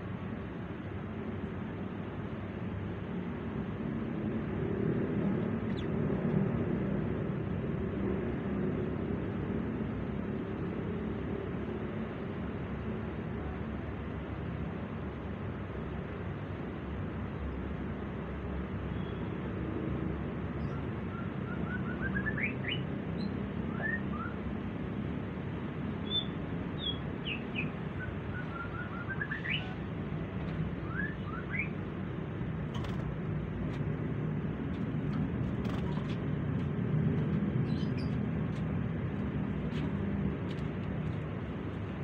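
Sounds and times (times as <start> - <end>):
small bird chirping: 5.6 - 6.0, 26.0 - 29.9, 30.8 - 31.9, 37.5 - 38.6
low background rumble: 24.4 - 42.0.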